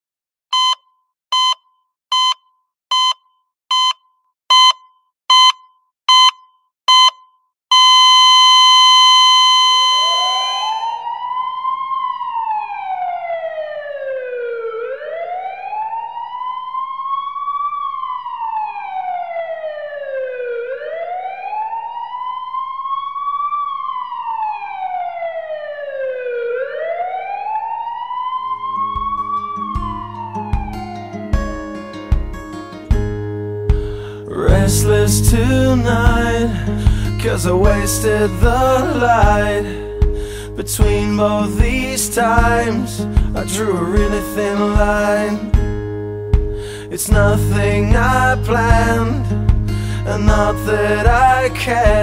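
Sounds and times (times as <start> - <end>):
short beeps: 0.5 - 11.0
emergency siren wailing: 7.7 - 32.0, 34.2 - 45.6
long steady tone: 7.8 - 11.1.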